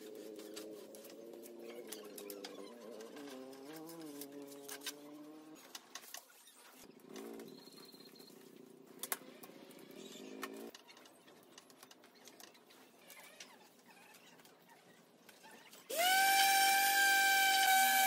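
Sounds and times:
electric sander running: 15.9s - 18.0s.

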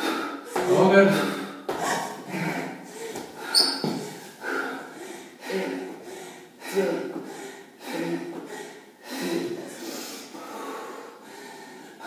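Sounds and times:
woman breathing hard: 0.0s - 12.0s.

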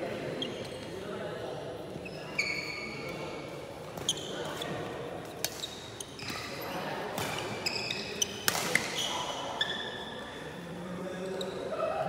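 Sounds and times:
shoes squeaking on court: 2.0s - 3.2s, 4.0s - 4.8s, 5.4s - 10.1s.

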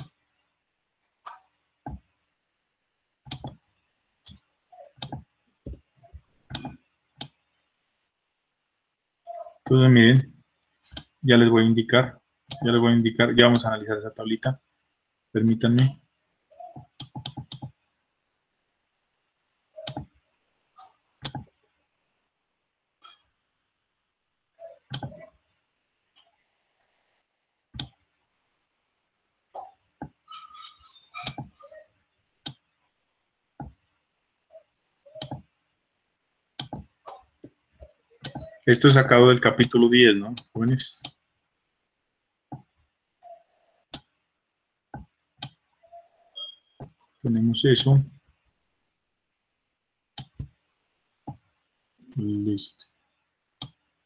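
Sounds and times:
computer mouse clicking: 3.3s - 3.6s, 16.7s - 17.8s, 20.8s - 21.5s, 24.9s - 25.3s, 30.6s - 31.6s, 36.6s - 36.9s, 45.0s - 45.6s
computer mouse or keyboard clicks: 3.3s - 3.6s, 21.2s - 21.5s.

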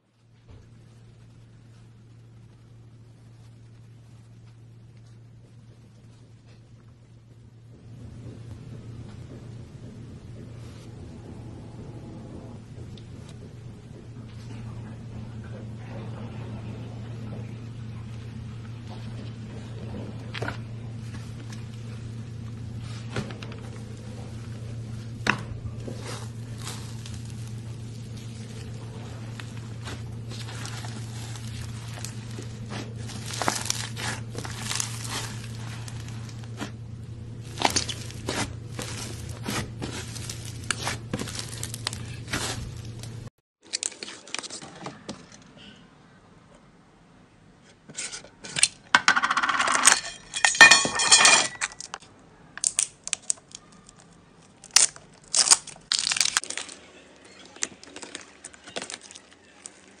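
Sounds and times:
steady low hum: 0.0s - 43.3s
slime squishing: 18.7s - 45.1s, 52.6s - 60.0s
slime crackling and popping: 23.9s - 44.5s, 52.6s - 60.0s.

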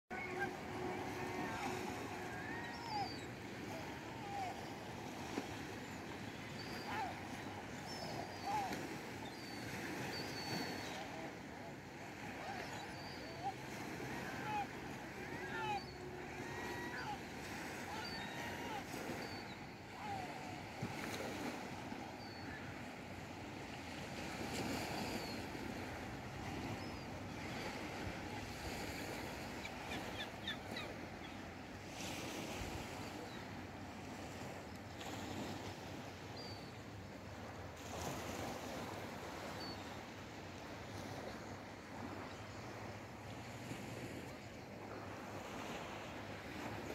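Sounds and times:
surf on shingle beach: 0.1s - 46.9s
faint high whistles: 6.4s - 11.3s
gliding bird calls: 29.6s - 31.5s.

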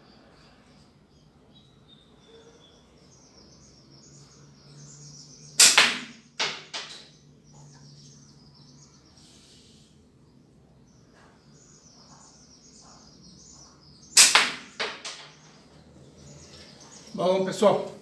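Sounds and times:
faint birdsong: 0.0s - 18.0s
ball striking target: 5.6s - 7.0s, 14.2s - 15.4s.

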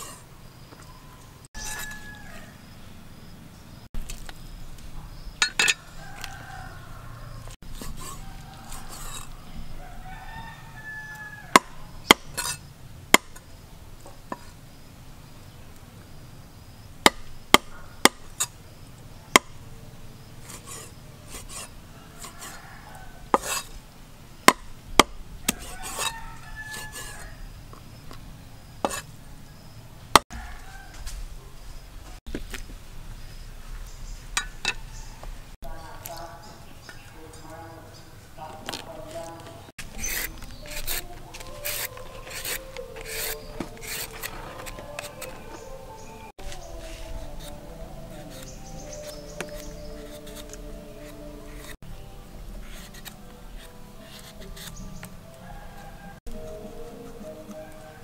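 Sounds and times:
cleaver chopping on wooden board: 11.5s - 13.4s, 17.0s - 18.4s, 19.4s - 19.6s, 23.3s - 23.6s, 24.5s - 26.1s.

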